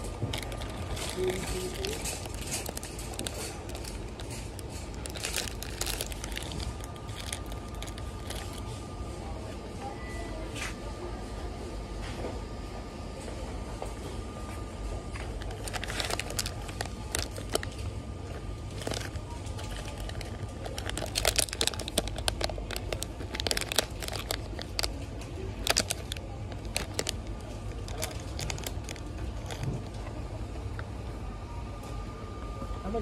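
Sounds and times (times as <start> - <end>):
plastic bags crinkling: 0.0 - 8.8, 15.0 - 30.1
steady low hum: 0.0 - 33.0.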